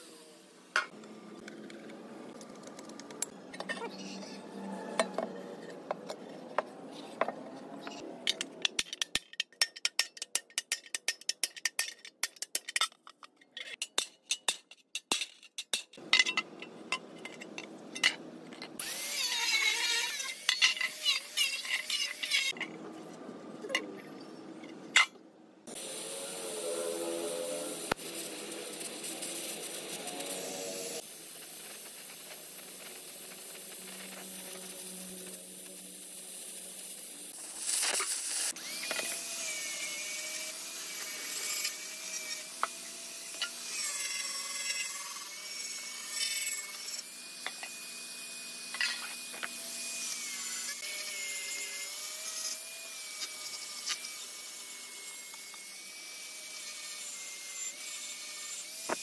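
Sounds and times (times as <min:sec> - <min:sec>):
scraping and handling noise: 0:04.8 - 0:18.8
gas torch hissing: 0:25.7 - 0:38.6.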